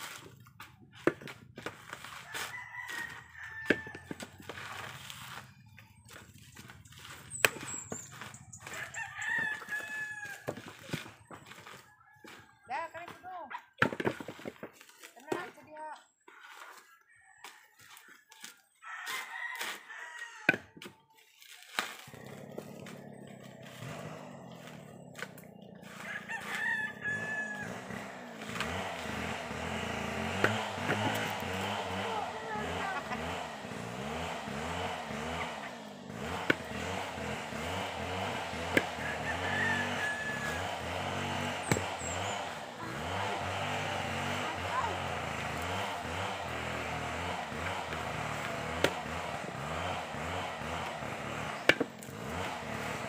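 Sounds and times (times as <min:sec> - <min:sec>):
rooster crowing: 0:02.2 - 0:04.3, 0:08.6 - 0:10.6, 0:18.8 - 0:20.6, 0:25.8 - 0:28.4, 0:38.8 - 0:42.8
engine revving: 0:03.7 - 0:10.4, 0:22.1 - 0:53.0.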